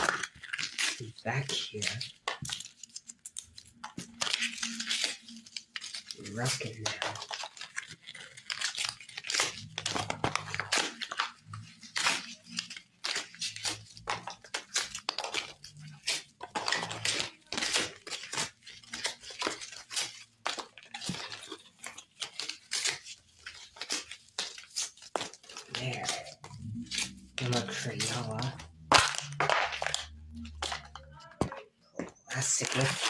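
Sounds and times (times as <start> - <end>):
cardboard and paper ripping: 0.0 - 33.0.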